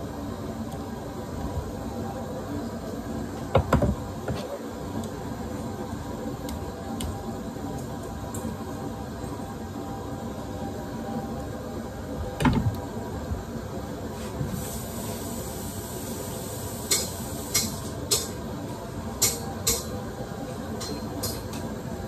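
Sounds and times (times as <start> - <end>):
hiss: 14.2 - 18.3.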